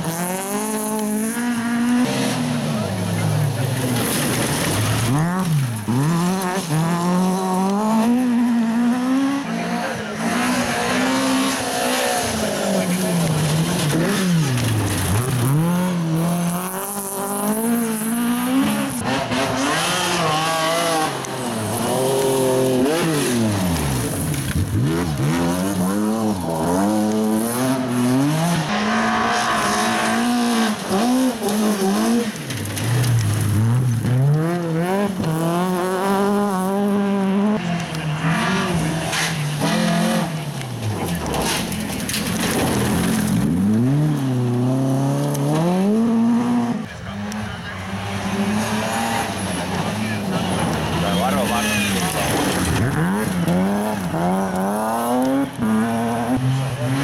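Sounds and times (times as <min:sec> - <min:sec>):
rally car engines revving: 0:00.0 - 0:57.0
tyres sliding on gravel: 0:02.6 - 0:07.7, 0:11.5 - 0:20.2, 0:21.0 - 0:28.0, 0:28.6 - 0:36.7, 0:40.6 - 0:44.3, 0:47.4 - 0:55.7.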